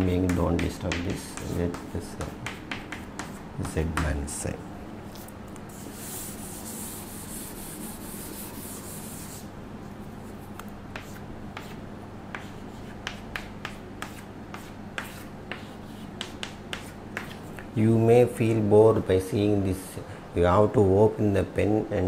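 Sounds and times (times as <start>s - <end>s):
chalk writing on board: 0.3s - 4.1s, 5.7s - 9.5s, 10.9s - 17.7s
chalkboard being wiped: 0.6s - 3.8s, 5.7s - 9.5s, 10.2s - 17.6s.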